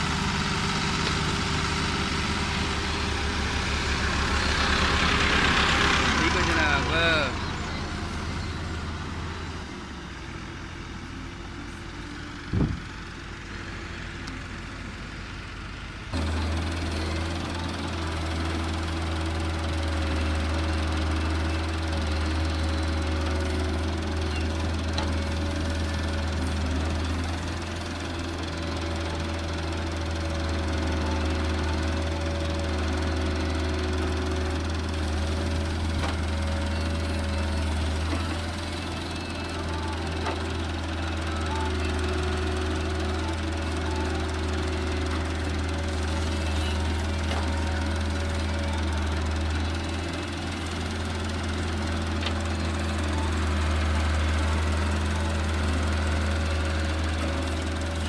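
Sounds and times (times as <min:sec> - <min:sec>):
diesel tractor engine running: 0:00.0 - 0:58.0
excavator working: 0:00.0 - 0:58.0
short thump: 0:12.5 - 0:13.0.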